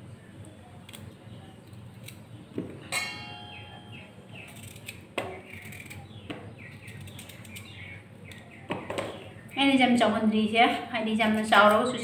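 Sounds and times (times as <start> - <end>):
birds chirping: 0.0 - 12.0
knife cutting mango: 4.4 - 8.5.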